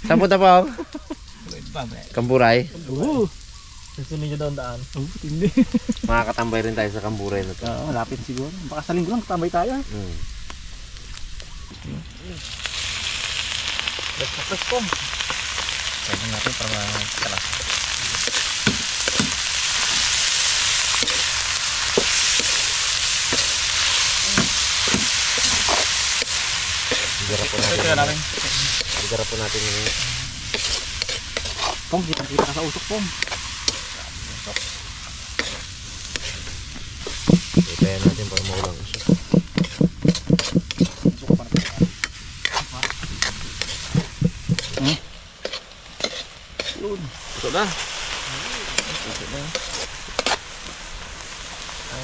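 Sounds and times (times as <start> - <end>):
meat sizzling in a wok: 0.0 - 40.5, 41.1 - 52.0
metal spatula scraping a pan: 29.8 - 31.9, 44.6 - 46.8.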